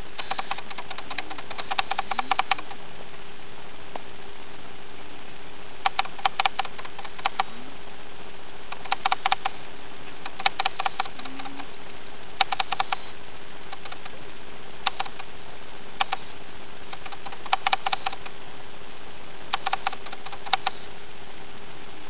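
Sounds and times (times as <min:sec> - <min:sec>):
steady low hum: 0:00.0 - 0:22.0
meerkat clicking calls: 0:00.2 - 0:02.8, 0:05.8 - 0:07.6, 0:08.7 - 0:14.2, 0:14.8 - 0:15.3, 0:16.0 - 0:16.3, 0:16.9 - 0:18.4, 0:19.5 - 0:20.9.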